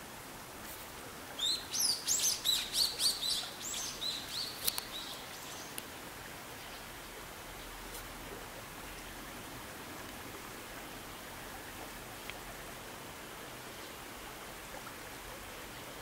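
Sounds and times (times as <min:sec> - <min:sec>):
flowing water rushing: 0:00.0 - 0:16.0
songbird chirping: 0:01.3 - 0:05.9.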